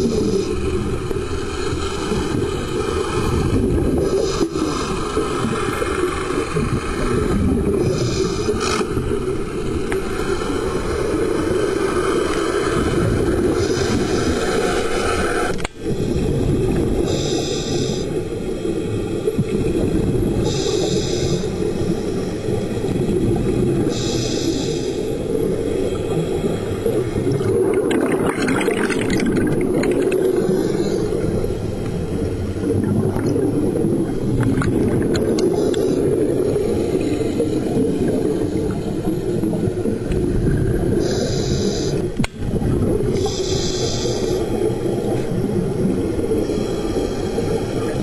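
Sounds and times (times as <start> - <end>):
muffled underwater rumble: 0.0 - 48.0
regulator bubbling: 25.3 - 48.0.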